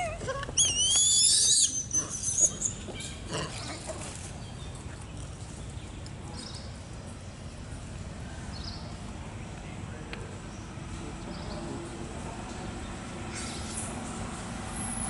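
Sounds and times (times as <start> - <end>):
baby monkey squealing: 0.6 - 3.2.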